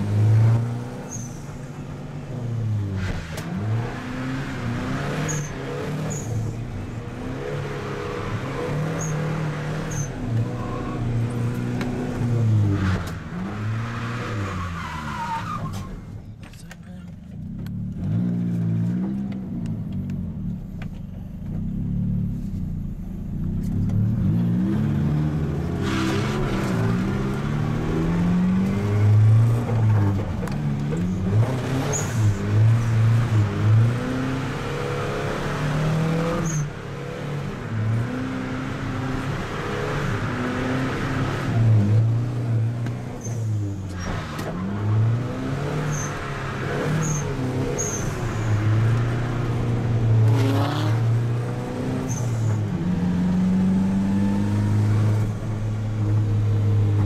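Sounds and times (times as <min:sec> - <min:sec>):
car engine revving: 0:23.6 - 0:57.0.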